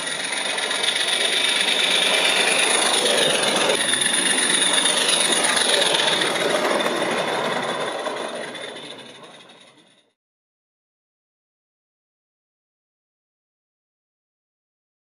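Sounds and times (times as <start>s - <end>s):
steam hiss: 0.0s - 9.3s
train wheel noise: 0.0s - 10.2s.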